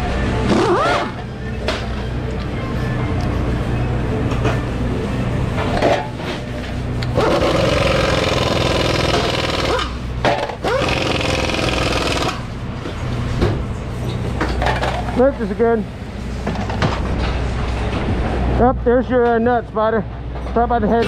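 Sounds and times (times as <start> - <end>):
motor humming: 6.4 - 12.6
pitched motor buzz: 7.1 - 12.5.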